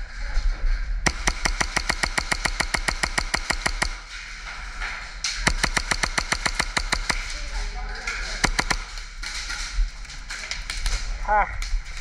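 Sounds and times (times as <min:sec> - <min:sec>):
airsoft pistol rapid shots: 0:01.1 - 0:04.1, 0:05.4 - 0:07.6, 0:08.4 - 0:09.0.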